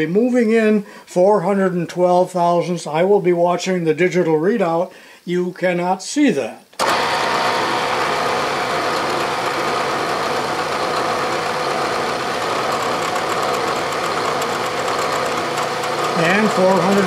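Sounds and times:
milling machine hum: 6.8 - 17.0.

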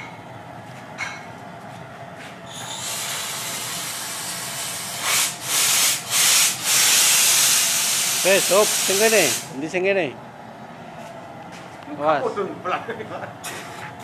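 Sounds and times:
steam hissing from valve: 2.6 - 9.5.

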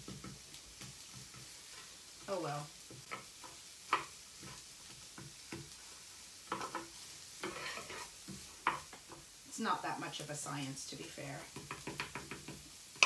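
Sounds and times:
onion sizzling in oil: 0.0 - 13.0
wooden spoon scraping pan: 2.9 - 9.2.

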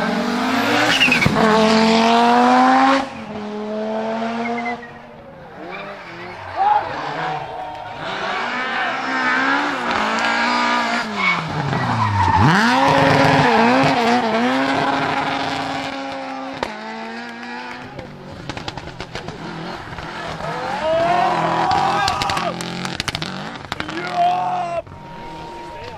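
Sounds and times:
rally car engine revving: 0.0 - 25.9
exhaust cracks and pops: 17.7 - 20.4, 21.6 - 24.0.

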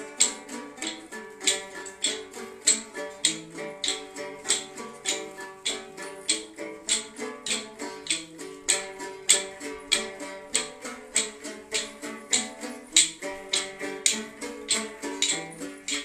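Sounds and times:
plucked string folk tune: 0.0 - 16.0.

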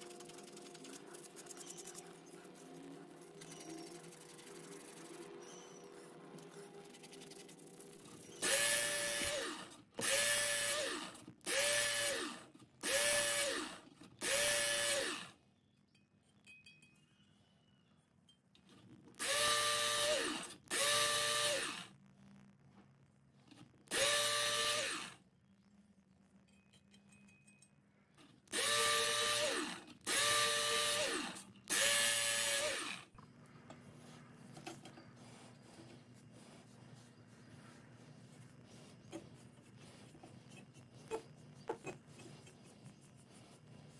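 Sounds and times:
blade grinding on abrasive: 0.2 - 15.3, 28.5 - 33.2
electric knife sharpener whining: 8.4 - 15.4, 19.2 - 21.9, 23.9 - 25.2, 28.5 - 33.1.

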